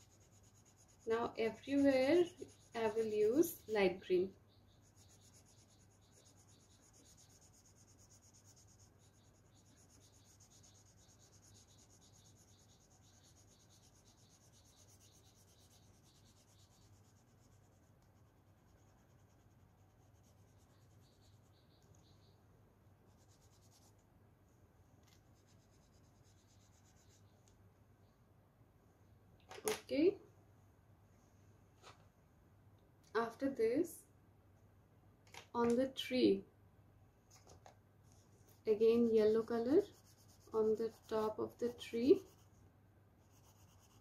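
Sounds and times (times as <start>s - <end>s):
colouring strokes on paper: 0.0s - 22.2s, 23.1s - 24.1s, 25.0s - 27.3s, 38.1s - 44.0s.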